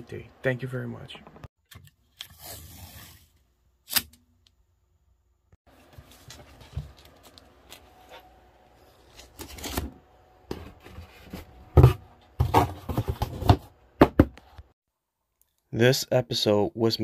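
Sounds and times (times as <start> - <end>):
cardboard rustling and scraping: 5.7 - 8.2, 8.9 - 13.7
cardboard knocks and slaps: 11.8 - 14.4.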